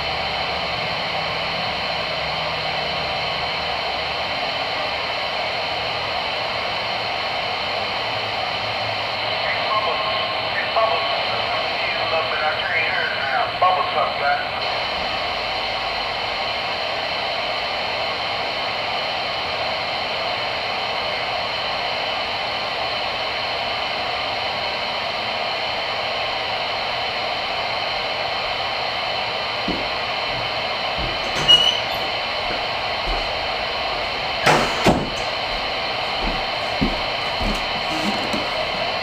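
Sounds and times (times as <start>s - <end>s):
radio static hiss: 9.1s - 17.6s, 32.0s - 39.0s.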